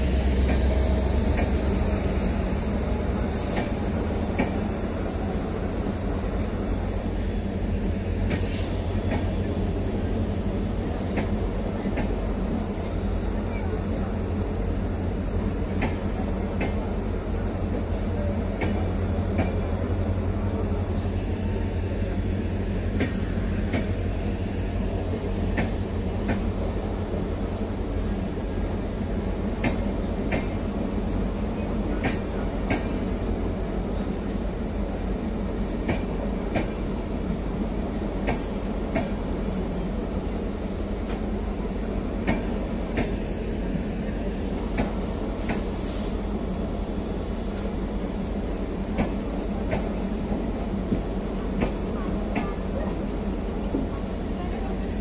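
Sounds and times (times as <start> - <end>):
train coaches rumbling: 0.0 - 55.0.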